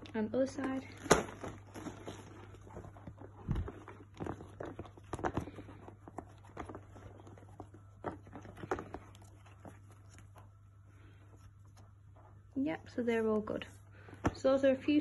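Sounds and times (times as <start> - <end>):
leather straps knocking and creaking: 0.0 - 10.5
steady low hum: 0.0 - 15.0.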